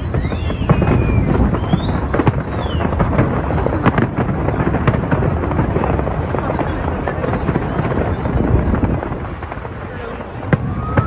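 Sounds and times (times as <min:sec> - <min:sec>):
fireworks bangs and crackles: 0:00.0 - 0:11.0
fireworks whistling: 0:00.0 - 0:11.0.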